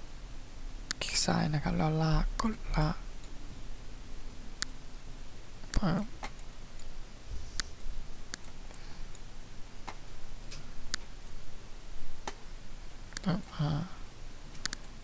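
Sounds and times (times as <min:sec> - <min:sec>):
computer mouse clicking: 0:08.3 - 0:09.3, 0:14.5 - 0:15.0.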